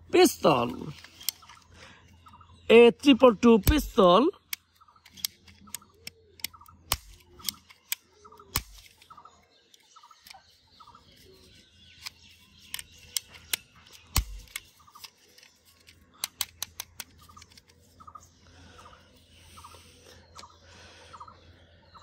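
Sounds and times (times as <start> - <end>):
plastic toy pistol clicks and snaps: 3.6 - 10.4, 12.0 - 17.8.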